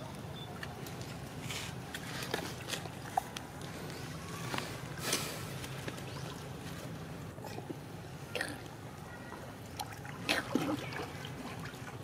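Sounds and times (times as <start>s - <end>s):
water splashing and lapping: 0.5s - 12.0s.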